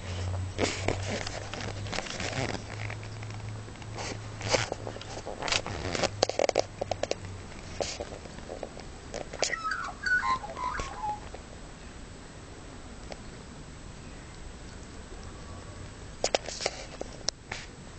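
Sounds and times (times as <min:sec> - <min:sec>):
short high chirping call: 0:09.5 - 0:11.3.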